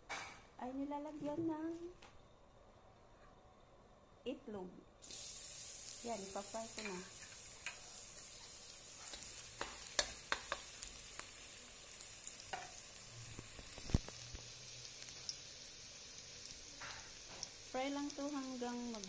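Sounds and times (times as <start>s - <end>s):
garlic sizzling in oil: 5.0s - 19.0s
utensil knocking against wok: 9.1s - 10.7s.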